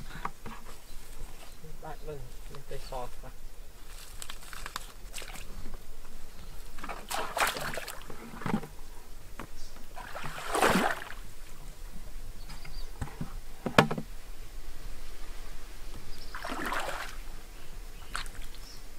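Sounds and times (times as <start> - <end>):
wading through muddy water: 4.1 - 5.7, 6.6 - 8.6, 9.9 - 11.7, 16.3 - 17.4, 18.0 - 18.7.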